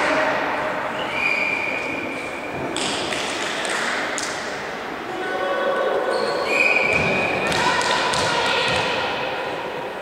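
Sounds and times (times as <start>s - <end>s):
referee's whistle: 6.2s - 7.3s.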